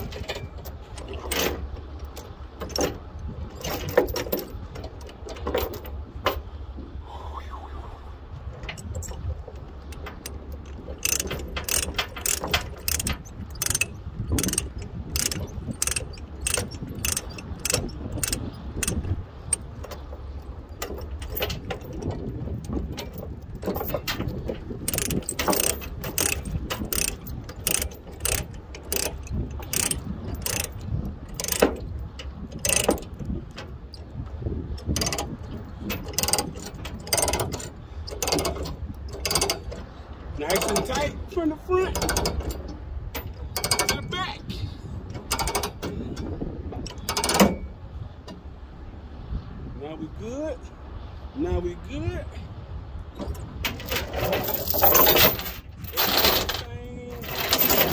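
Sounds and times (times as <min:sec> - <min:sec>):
ratchet clicks: 0:09.9 - 0:19.6, 0:24.9 - 0:30.8, 0:31.4 - 0:31.7, 0:32.6 - 0:33.0, 0:36.1 - 0:38.6, 0:39.2 - 0:39.6, 0:42.0 - 0:42.5, 0:43.2 - 0:44.0, 0:45.3 - 0:45.8, 0:46.9 - 0:47.6.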